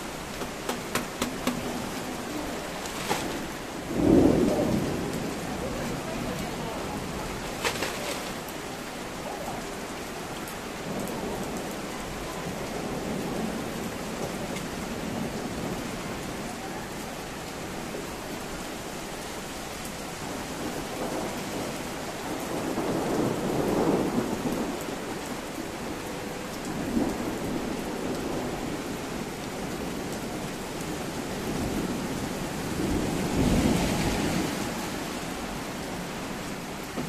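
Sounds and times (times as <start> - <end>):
rain hiss: 0.0 - 37.0
thunder rumbling: 1.4 - 8.8, 20.6 - 26.0, 26.7 - 37.0.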